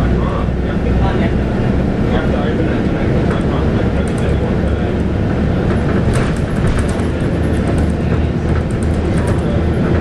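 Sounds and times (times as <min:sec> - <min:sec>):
bus diesel engine rumble: 0:00.0 - 0:10.0
body rattles and clicks: 0:05.2 - 0:10.0.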